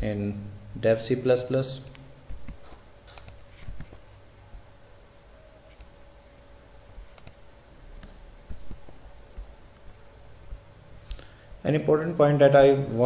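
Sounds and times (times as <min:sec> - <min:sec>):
faint steady hum: 0:00.0 - 0:13.0
computer mouse clicks: 0:02.3 - 0:04.0, 0:05.7 - 0:06.0, 0:07.0 - 0:07.4.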